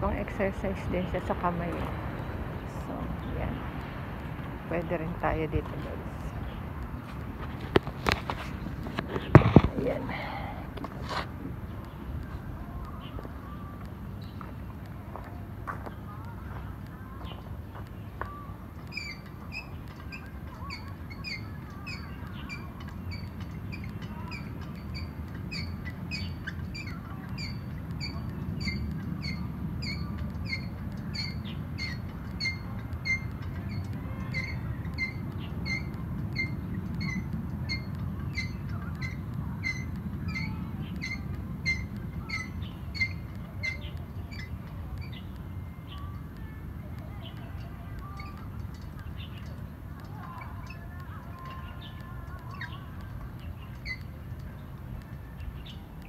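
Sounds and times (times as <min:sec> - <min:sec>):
low steady rumble: 0:00.0 - 0:56.0
squeaking pivot of gym wheel: 0:18.3 - 0:45.2, 0:47.5 - 0:54.5.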